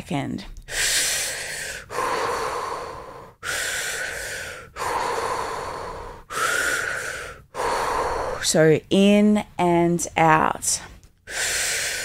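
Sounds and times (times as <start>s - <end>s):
woman breathing deeply: 0.6s - 8.5s, 11.2s - 12.0s.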